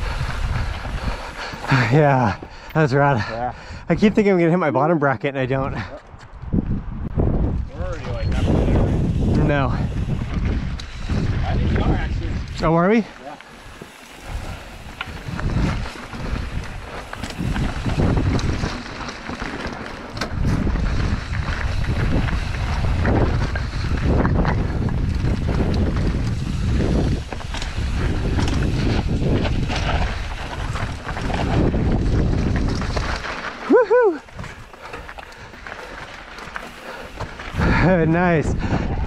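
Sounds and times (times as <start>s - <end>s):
wind buffeting microphone: 0.0s - 4.5s, 5.4s - 39.0s
tyres crunching over stones: 12.4s - 38.3s.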